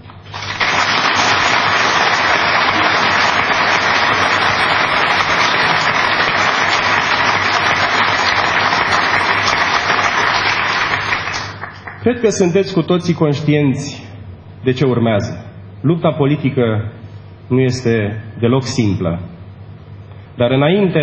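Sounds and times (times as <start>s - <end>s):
audience applauding: 0.3s - 12.0s.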